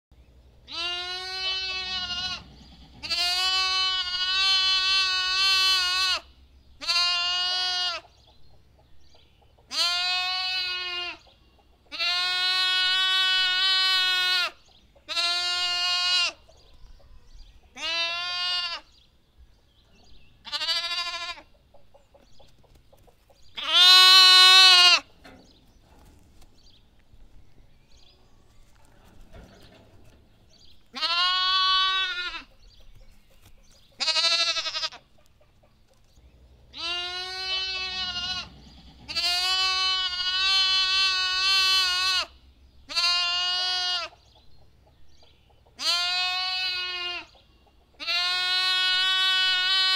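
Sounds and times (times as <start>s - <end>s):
lamb bleating: 0.7s - 8.1s, 9.7s - 11.2s, 11.9s - 16.4s, 17.7s - 18.9s, 20.4s - 21.5s, 23.6s - 25.1s, 30.9s - 32.5s, 34.0s - 35.0s, 36.7s - 44.2s, 45.8s - 47.3s, 48.0s - 49.9s.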